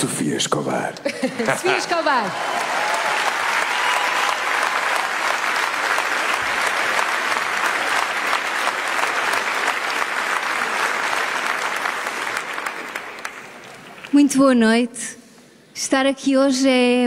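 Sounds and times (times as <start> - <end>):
audience applauding: 1.4 - 14.2.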